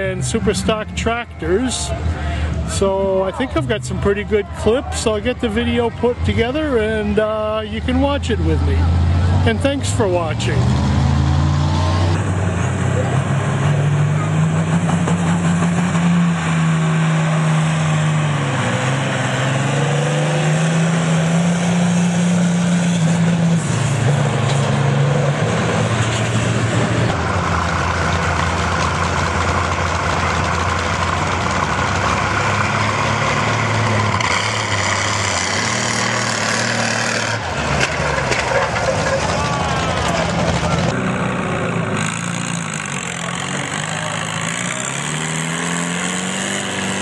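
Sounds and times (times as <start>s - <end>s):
tractor engines running hard: 0.0s - 47.0s.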